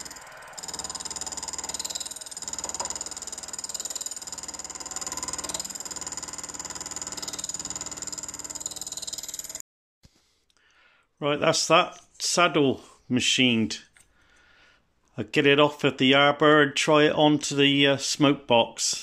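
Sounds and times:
harsh metal cutting noise: 0.0 - 9.6
milling machine whining: 0.0 - 9.6.

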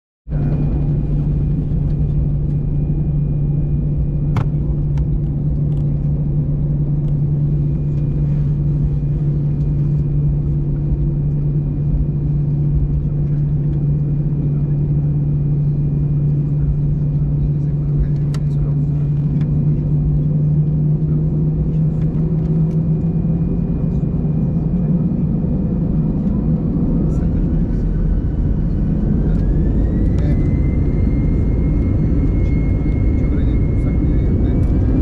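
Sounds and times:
aircraft cabin engine drone: 0.3 - 35.0
faint high whine: 26.2 - 35.0.

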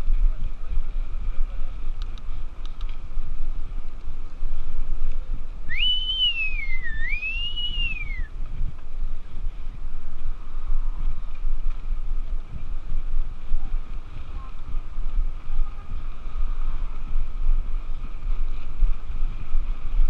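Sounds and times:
wind buffeting microphone: 0.0 - 20.0
person whistling: 5.7 - 8.3.

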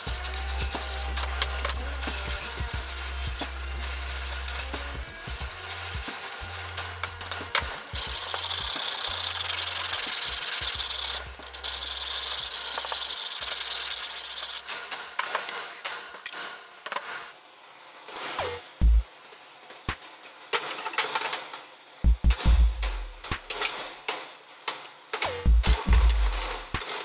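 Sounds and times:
sandpaper rubbing wood: 0.0 - 14.9.

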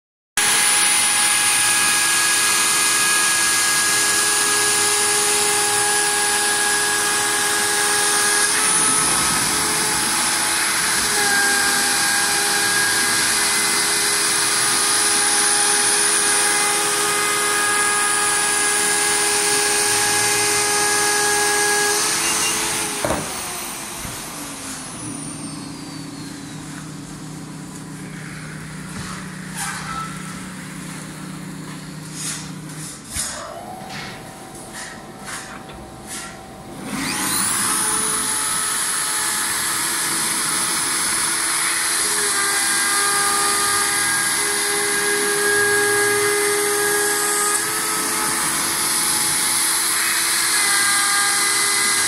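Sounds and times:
dust extraction running: 0.4 - 50.3
router spindle whining: 0.4 - 52.0
low machine hum: 22.9 - 38.4.

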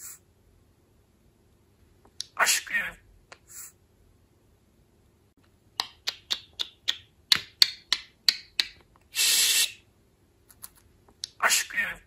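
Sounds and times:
budgerigar raspy hiss: 9.1 - 9.8.

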